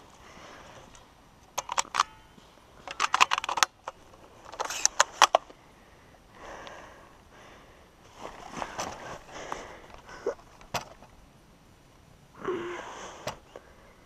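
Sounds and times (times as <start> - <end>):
leaves crackling underfoot: 8.0 - 10.6.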